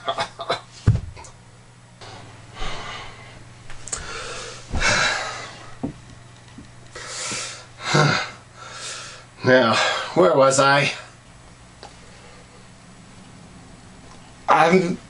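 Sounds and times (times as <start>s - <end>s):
man breathing heavily: 2.5s - 5.7s, 6.9s - 10.2s.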